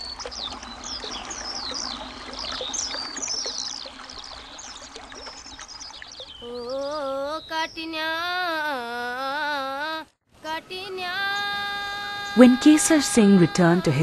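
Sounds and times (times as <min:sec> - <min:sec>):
running water: 0:00.0 - 0:07.3, 0:10.7 - 0:14.0
birds chirping: 0:00.0 - 0:08.7.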